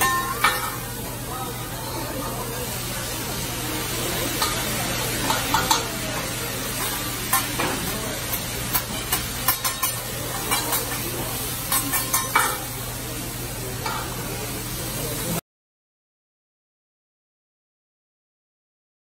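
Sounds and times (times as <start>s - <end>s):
metal spatulas striking steel: 0.0s - 0.9s, 4.4s - 12.8s
food sizzling on a griddle: 0.0s - 15.4s.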